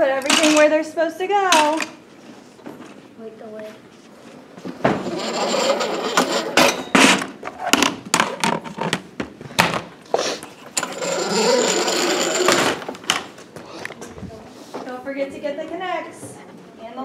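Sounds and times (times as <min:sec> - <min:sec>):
plastic toy pieces clattering: 0:00.2 - 0:00.7.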